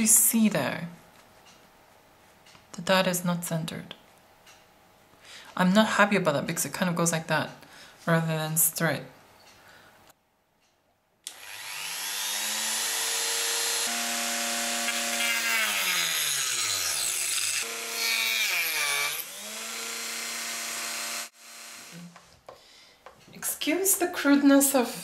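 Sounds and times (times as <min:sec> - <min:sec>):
rotary saw whining: 0:11.3 - 0:22.2
saw blade cutting wood: 0:11.3 - 0:22.2.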